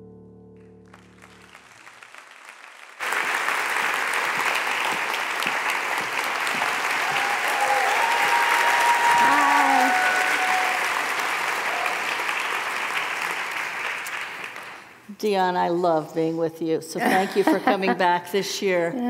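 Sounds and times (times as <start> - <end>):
audience applause: 0.8 - 15.0.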